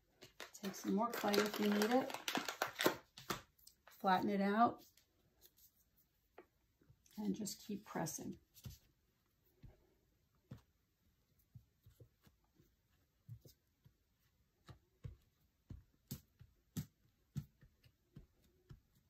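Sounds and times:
fingers tapping clay: 14.6 - 19.0.

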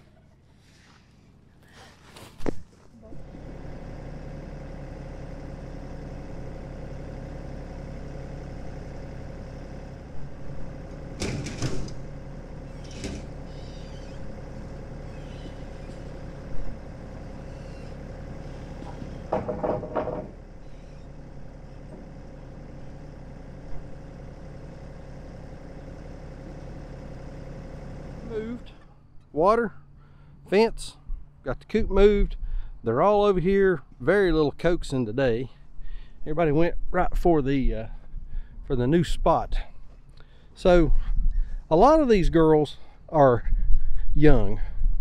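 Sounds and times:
tractor engine idling: 2.7 - 43.7
knocks and clatters: 11.2 - 12.1, 18.8 - 20.4.

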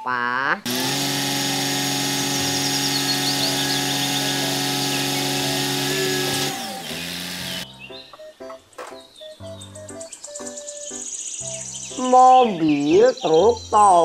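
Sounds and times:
truck engine and hydraulics droning: 0.7 - 7.6.

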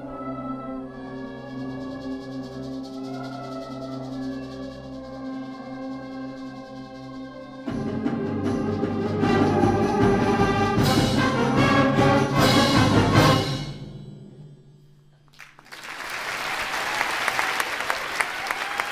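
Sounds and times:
percussion strikes: 1.8 - 15.3
audience applause: 15.4 - 18.9.

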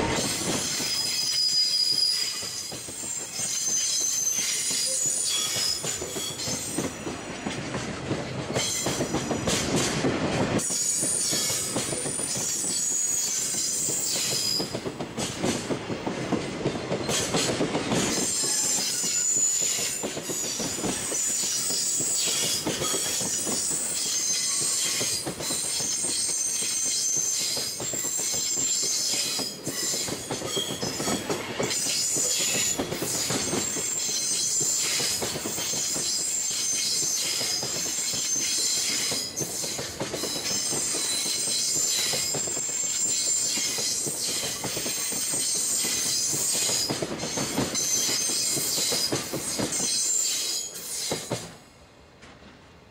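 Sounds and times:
wheels clacking over rail joints: 0.0 - 51.6
freight train rumble: 0.0 - 52.9
high-pitched wheel squeal: 0.1 - 6.9, 10.6 - 14.7, 18.2 - 39.5.

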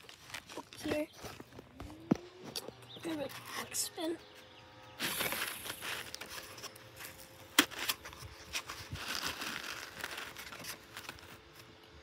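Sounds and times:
cardboard rustling and scraping: 5.0 - 11.7.

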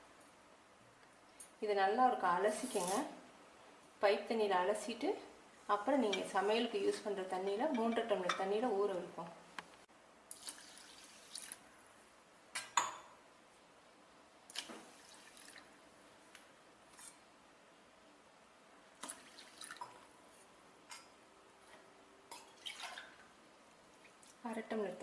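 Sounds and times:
water pouring into a plastic bowl: 10.3 - 11.6, 14.5 - 15.7, 19.0 - 20.0, 22.4 - 23.2
water drips and small splashes: 10.3 - 11.7, 14.5 - 15.8, 18.9 - 20.2, 21.7 - 24.4.

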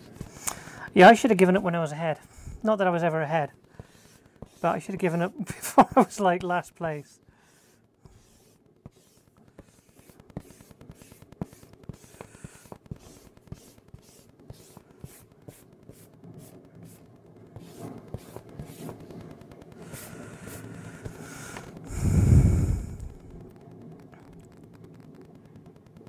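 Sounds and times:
tissue rubbing on paper: 3.0 - 6.1, 6.9 - 21.5.

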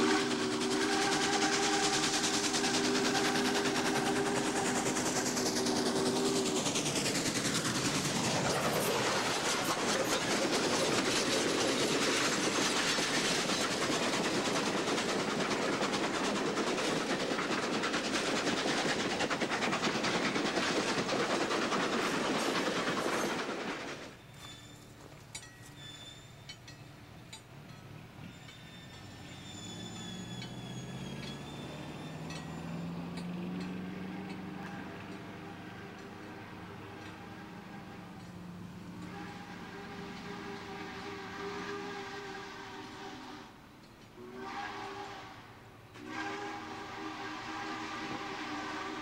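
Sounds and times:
steam locomotive chime whistle: 0.0 - 6.9, 24.1 - 49.0
wheels clicking over rail joints: 0.0 - 40.4
train rushing and clattering past: 0.0 - 49.0.

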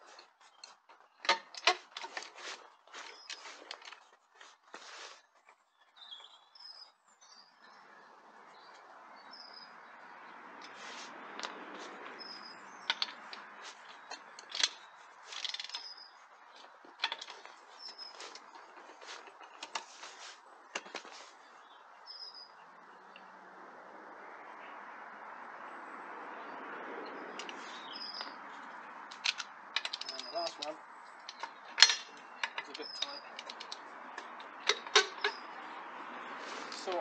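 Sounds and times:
small birds chirping: 0.0 - 1.2, 2.1 - 23.6, 24.4 - 37.0
wheel bolts clicking and knocking: 0.1 - 2.3, 12.8 - 20.0, 27.2 - 35.6.

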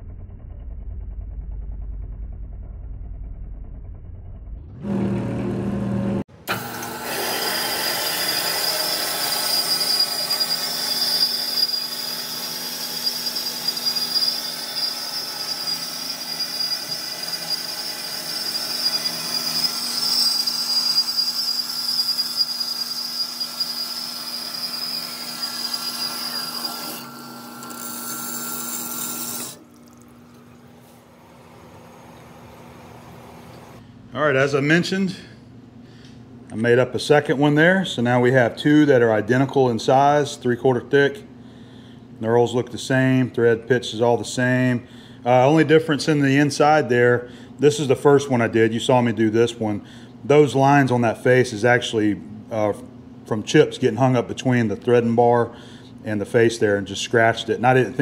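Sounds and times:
lathe rumbling: 0.1 - 33.8
bandsaw cutting metal: 6.4 - 29.6.

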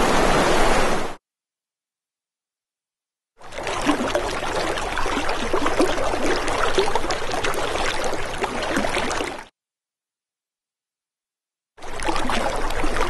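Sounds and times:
water trickling and gurgling: 3.4 - 9.5, 11.8 - 13.0.

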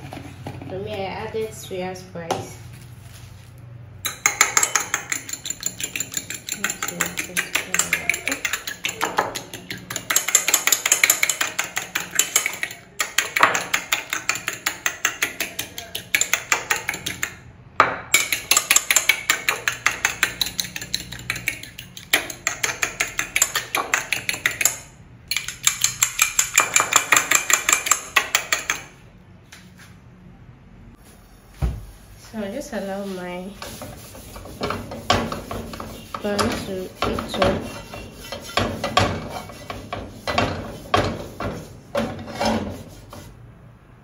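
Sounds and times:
fork clicking against bowl: 4.1 - 17.4, 18.2 - 28.8.

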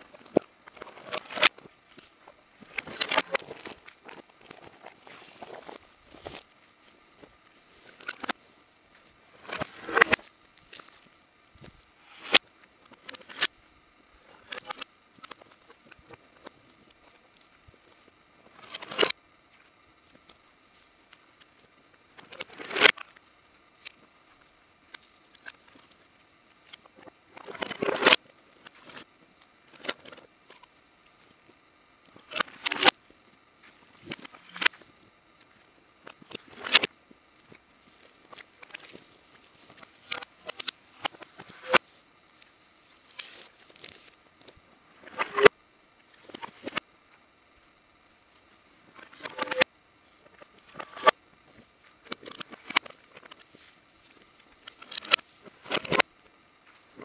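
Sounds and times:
footsteps crunching through brush: 2.6 - 11.9, 40.8 - 44.2
bones crackling and rattling: 2.7 - 6.4
twigs snapping: 9.0 - 11.0.

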